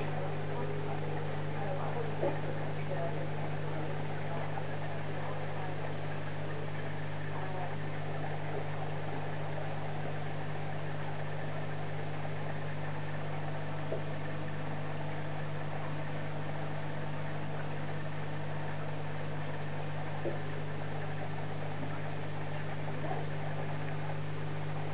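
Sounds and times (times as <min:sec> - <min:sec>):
aquarium equipment humming: 0:00.0 - 0:24.9.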